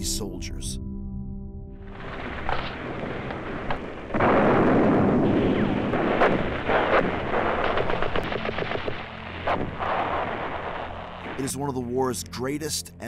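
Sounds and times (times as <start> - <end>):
rumble of gunfire and explosions: 1.8 - 12.6
sharp gunshots: 3.7 - 10.3.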